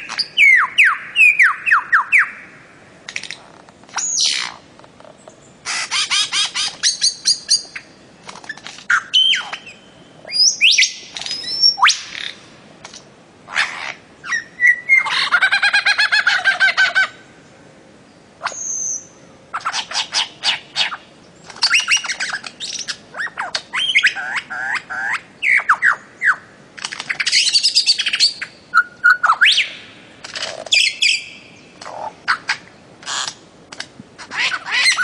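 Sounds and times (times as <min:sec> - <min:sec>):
birds chirping: 0:00.0 - 0:33.4
bird chattering squawk: 0:05.6 - 0:07.8, 0:13.5 - 0:17.2, 0:19.6 - 0:21.0, 0:30.4 - 0:33.4, 0:34.2 - 0:35.0.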